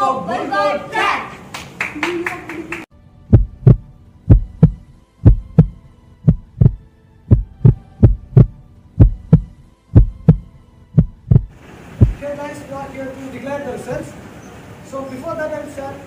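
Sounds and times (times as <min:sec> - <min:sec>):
heartbeat thumps: 0:03.3 - 0:12.2.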